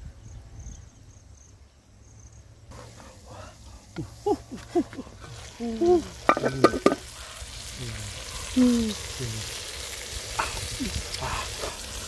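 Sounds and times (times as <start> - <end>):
food sizzling in pot: 4.0 - 12.0
metal pot lid clattering: 6.2 - 7.1.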